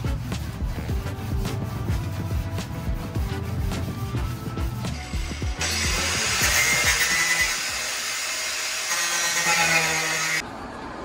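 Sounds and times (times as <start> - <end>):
background music with a beat: 0.0 - 7.1
power tool running: 5.0 - 10.4.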